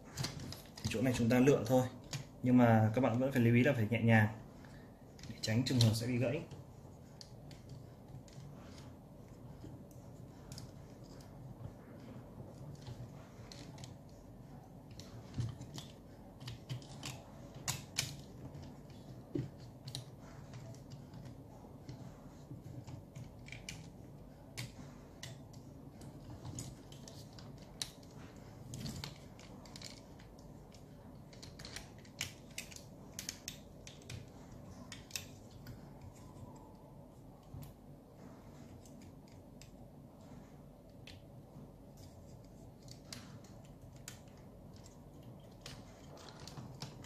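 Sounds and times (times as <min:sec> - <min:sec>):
faint low hum: 0:00.0 - 0:47.0
plastic parts clicking: 0:14.8 - 0:22.0, 0:22.7 - 0:36.7, 0:41.9 - 0:47.0.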